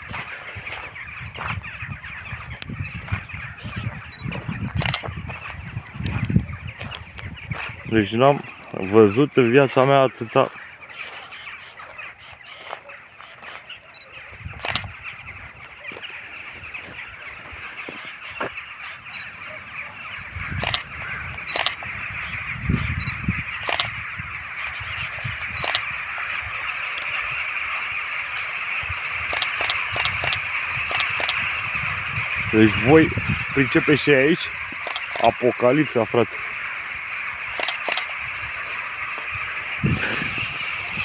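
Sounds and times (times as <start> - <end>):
rooks cawing: 0.0 - 41.0
camera shutter clicks: 4.8 - 5.1, 14.6 - 14.9, 20.6 - 20.9, 21.5 - 21.8, 23.6 - 23.9, 25.5 - 25.9, 27.0 - 27.2, 29.2 - 31.4, 34.8 - 35.3, 37.6 - 38.1.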